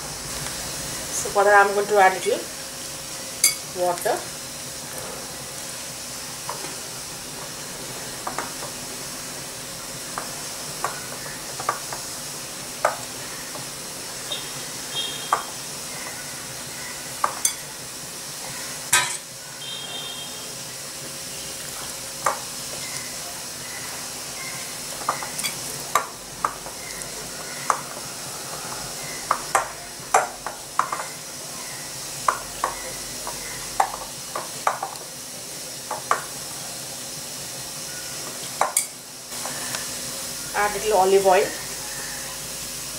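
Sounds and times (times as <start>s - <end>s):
steady hiss: 0.0s - 42.9s.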